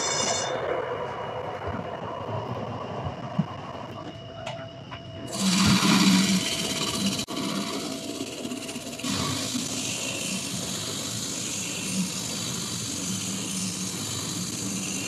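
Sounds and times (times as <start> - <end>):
cnc machine running: 5.3 - 15.0.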